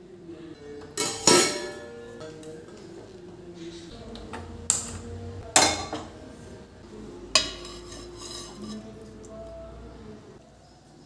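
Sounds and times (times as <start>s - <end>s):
metal cookware clanking: 0.8s - 2.6s, 4.2s - 6.3s, 7.3s - 9.1s.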